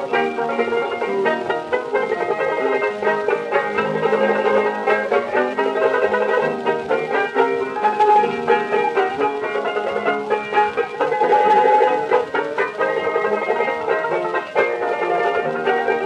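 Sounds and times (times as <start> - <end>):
plucked string band music: 0.0 - 16.0.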